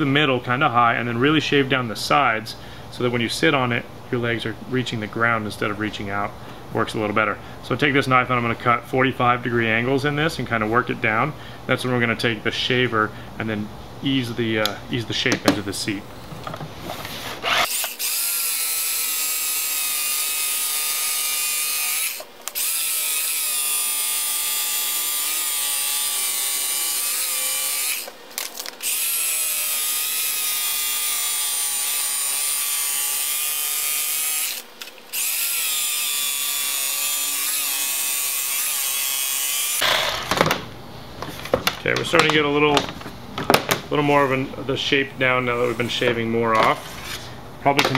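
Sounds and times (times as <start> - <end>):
electric carving knife motor whine: 17.4 - 28.2, 28.8 - 40.4.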